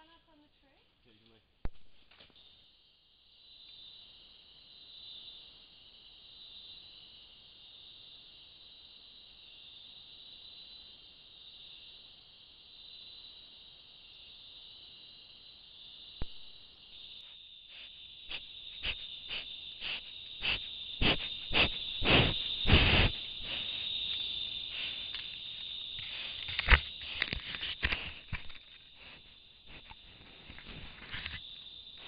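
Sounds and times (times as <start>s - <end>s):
night insects trilling: 0.0s - 32.0s
animal sniffing and snuffing: 17.7s - 23.9s, 24.6s - 25.4s, 26.0s - 31.1s.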